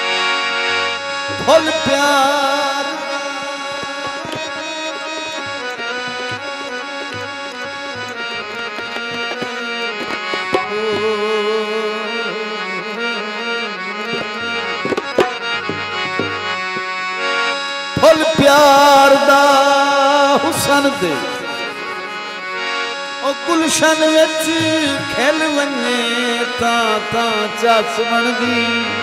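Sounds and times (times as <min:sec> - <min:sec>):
reed instrument melody: 0:00.0 - 0:29.0
man singing: 0:01.3 - 0:07.3, 0:09.0 - 0:14.6, 0:17.9 - 0:22.0, 0:23.2 - 0:29.0
hand drum beats: 0:01.3 - 0:11.6, 0:14.1 - 0:17.0.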